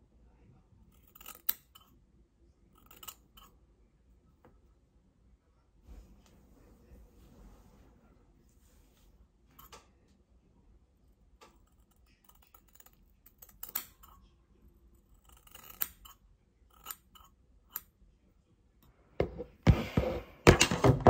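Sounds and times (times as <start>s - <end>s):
scissors snipping hair: 1.0s - 1.9s, 2.8s - 3.5s, 11.8s - 14.2s, 15.2s - 17.9s.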